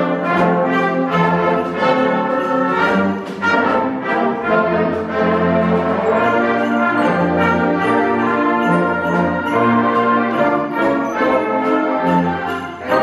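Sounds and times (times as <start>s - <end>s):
sleigh bells jingling: 0.0s - 13.0s.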